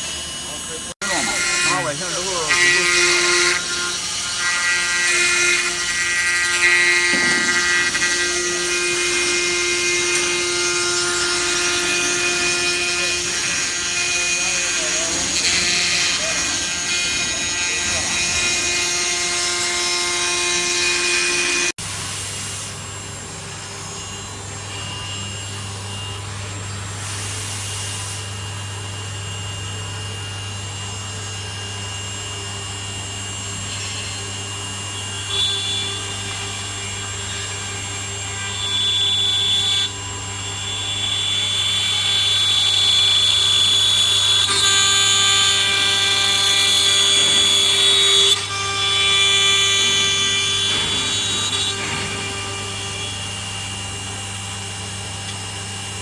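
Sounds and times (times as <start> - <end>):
wood router spindle whine: 0.0 - 21.9, 22.7 - 56.0
cutter rasping wood: 1.0 - 21.8, 41.7 - 53.8.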